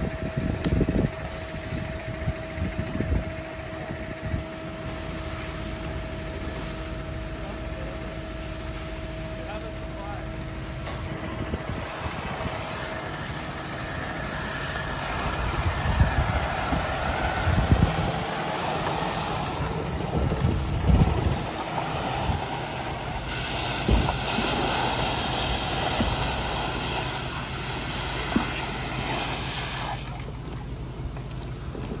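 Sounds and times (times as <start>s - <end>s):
wind buffeting microphone: 0.0s - 4.7s, 10.8s - 29.4s
fire hose spraying water: 0.0s - 32.0s.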